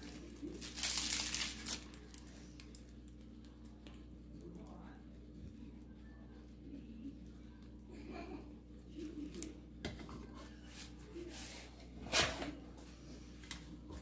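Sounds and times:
piping bag rustling: 0.0 - 4.0.

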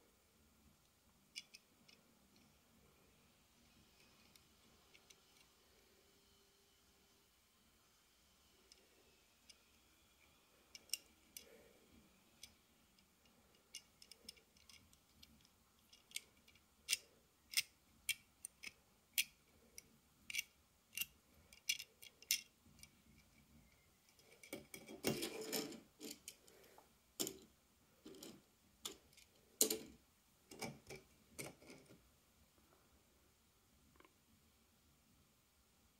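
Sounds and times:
fingers handling metal toy car: 10.6 - 11.6, 12.4 - 23.4, 24.1 - 26.6, 27.2 - 32.0
scraping and rubbing: 24.3 - 26.5.

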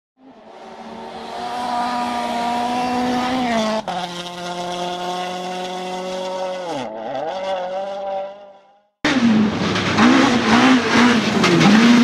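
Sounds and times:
racing car engine revving: 0.2 - 12.0.

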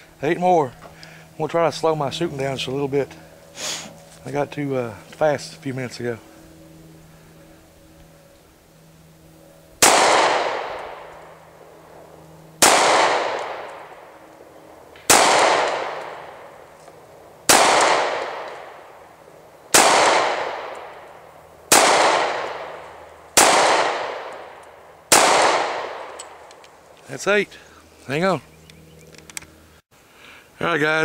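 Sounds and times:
pistol shots with echo: 9.8 - 11.1, 12.6 - 14.2, 15.0 - 16.6, 17.5 - 19.0, 19.7 - 21.1, 21.7 - 26.4.

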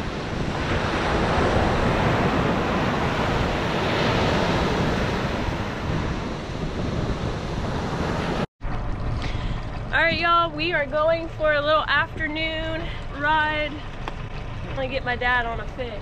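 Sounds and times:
ocean surf breaking: 0.0 - 8.5
wind buffeting microphone: 0.0 - 16.0.

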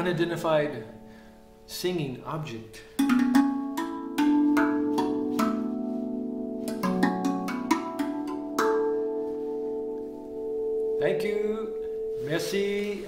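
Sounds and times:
steel tongue drum notes: 2.8 - 13.0.

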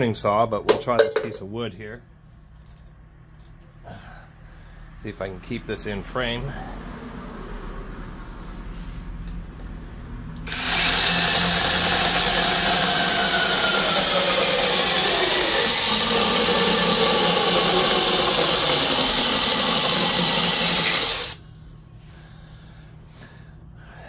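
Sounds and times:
chainsaw cutting log: 10.5 - 21.4.

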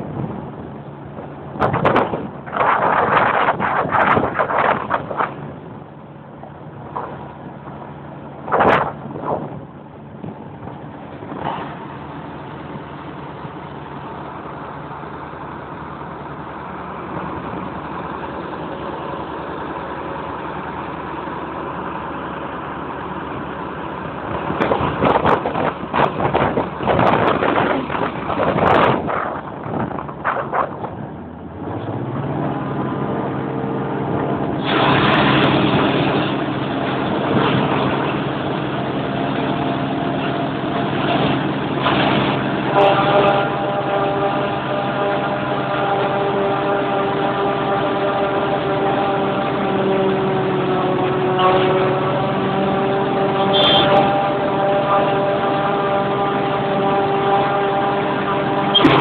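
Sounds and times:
loud even rushing noise: 0.0 - 22.5, 23.2 - 44.5, 58.6 - 59.0
forage harvester engine humming: 0.0 - 59.0
loud clatter and knocks: 1.2 - 5.6, 24.3 - 31.2, 34.5 - 43.2, 58.7 - 59.0.

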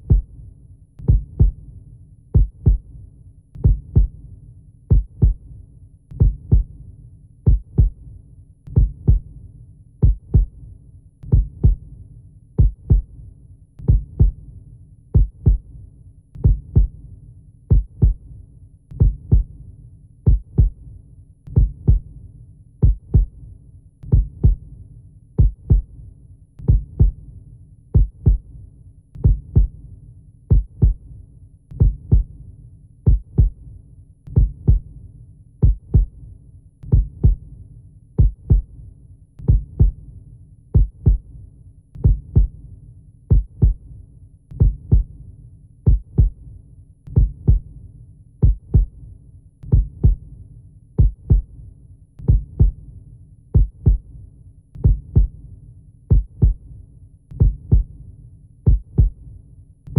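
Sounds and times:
heartbeat double thumps: 0.0 - 0.3, 1.0 - 1.6, 2.4 - 2.9, 3.6 - 4.2, 4.9 - 5.4, 6.2 - 6.7, 7.5 - 8.0, 8.7 - 9.3, 10.0 - 10.6, 11.3 - 11.8, 12.6 - 13.1, 13.8 - 14.4, 15.2 - 15.7, 16.4 - 17.0, 17.7 - 18.2, 19.0 - 19.5, 20.3 - 20.8, 21.5 - 22.1, 22.8 - 23.4, 24.1 - 24.6, 25.4 - 25.9, 26.6 - 27.2, 28.0 - 28.5, 29.2 - 29.8, 30.5 - 31.0, 31.8 - 32.3, 33.1 - 33.6, 34.3 - 34.9, 35.6 - 36.2, 36.9 - 37.4, 38.2 - 38.7, 39.4 - 40.0, 40.8 - 41.3, 42.0 - 42.6, 43.3 - 43.8, 44.6 - 45.1, 45.9 - 46.4, 47.1 - 47.7, 48.4 - 49.0, 49.7 - 50.2, 51.0 - 51.5, 52.2 - 52.8, 53.6 - 54.1, 54.8 - 55.4, 56.1 - 56.6, 57.4 - 57.9, 58.7 - 59.2.

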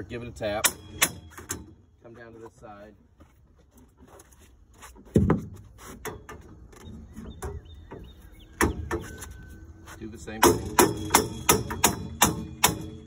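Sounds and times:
metal rails clanking: 0.4 - 2.3, 10.2 - 13.0
heavy thud of metal rails: 0.6 - 1.8, 10.4 - 13.0.

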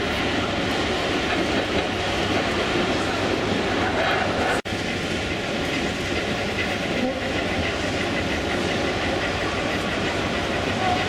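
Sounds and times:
model train wheels clicking on rails: 4.0 - 11.0.

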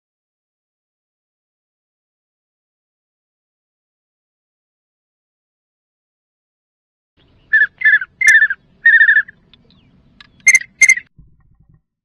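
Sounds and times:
duck whistle call: 7.5 - 9.3, 10.5 - 11.1.

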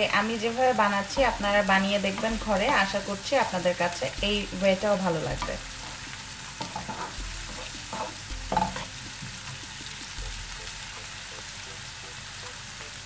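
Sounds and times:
onion sizzling in butter: 0.0 - 13.0
wooden spatula scraping a pan: 5.4 - 10.8.

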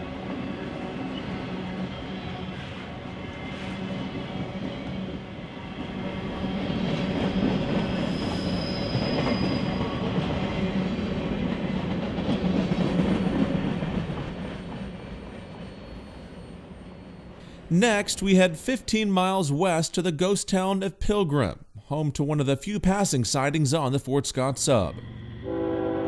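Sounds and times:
train wheels rumbling on rails: 0.0 - 17.4
high wheel squeal: 6.3 - 10.1, 15.5 - 17.4.

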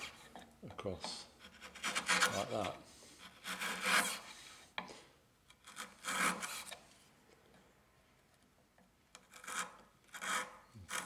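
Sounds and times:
chisel slicing wood: 0.0 - 4.9, 5.5 - 6.9, 9.1 - 11.0.

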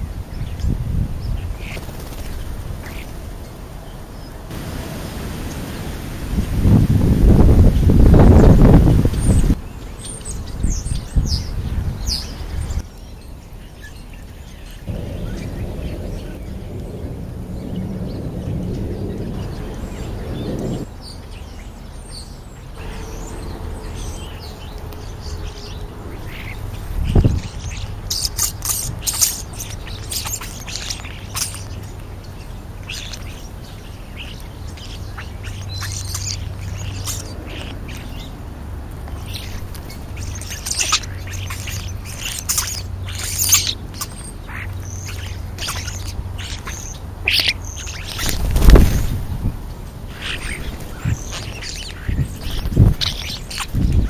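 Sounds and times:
starlings chirping and squawking: 0.0 - 4.7, 7.2 - 54.0.

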